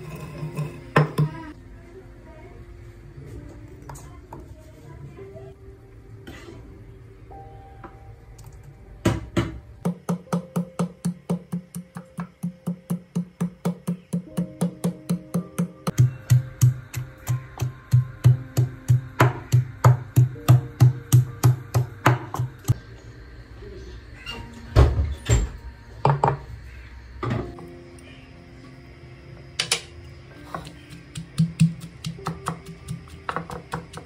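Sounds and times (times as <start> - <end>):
wooden pestle pounding in mortar: 9.8 - 22.8, 30.6 - 34.0.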